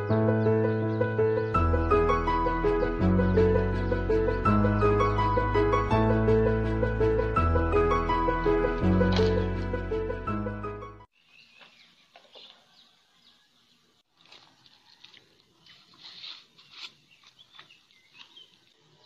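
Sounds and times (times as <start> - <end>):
background music: 0.0 - 11.1
birds chirping: 11.1 - 19.0.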